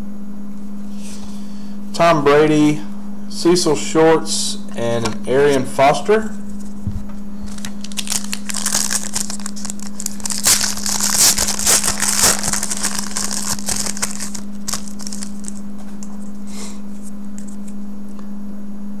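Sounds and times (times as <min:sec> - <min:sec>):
low electrical hum: 0:00.0 - 0:19.0
foil wrapper crinkling and tearing: 0:07.4 - 0:15.7.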